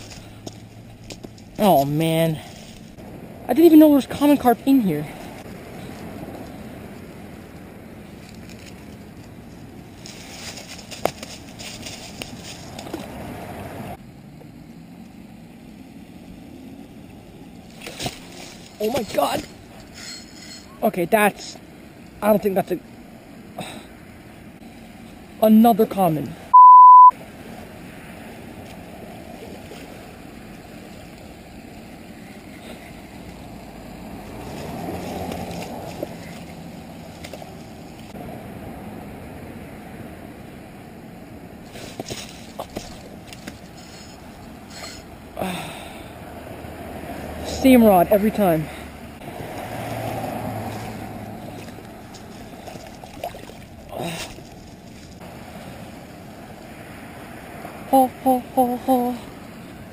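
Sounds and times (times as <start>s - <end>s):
fish thrashing in water: 50.7s - 55.0s.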